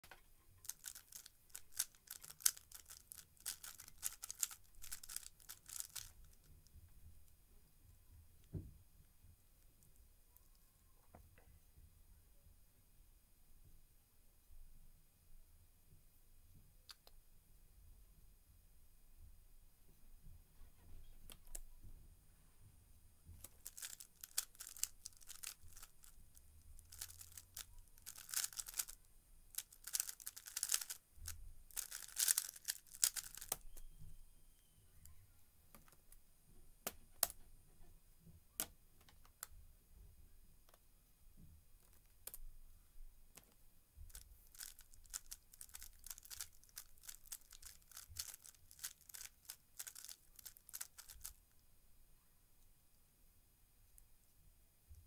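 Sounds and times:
puzzle cube clicking: 0.7 - 6.2, 26.8 - 29.0, 29.6 - 31.0, 31.8 - 33.9.

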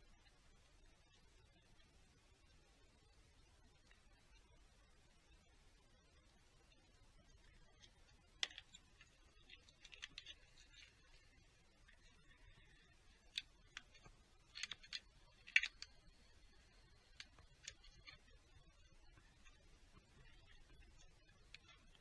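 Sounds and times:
light clicks on plastic parts: 7.7 - 22.0.

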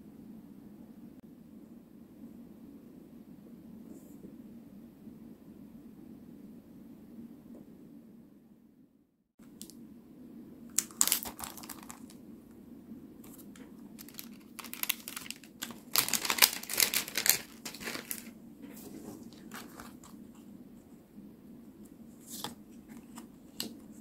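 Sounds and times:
plastic packaging crinkling: 10.7 - 12.2, 13.2 - 18.4, 19.2 - 20.3.

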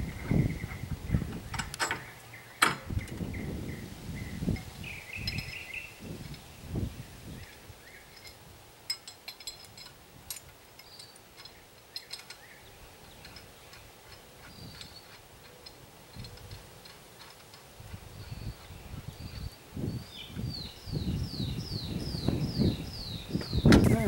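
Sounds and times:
metallic clicks from hand hoist: 1.5 - 2.9, 8.1 - 17.7.

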